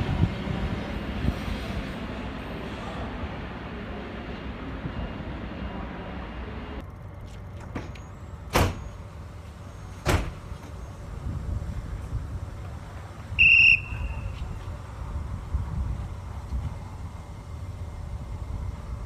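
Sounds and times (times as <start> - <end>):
train rumble: 0.0 - 19.0.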